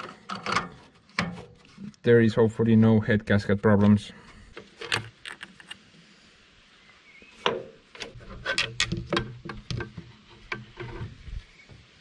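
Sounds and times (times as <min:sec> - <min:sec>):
sharp knocks and clicks: 0:07.4 - 0:11.0.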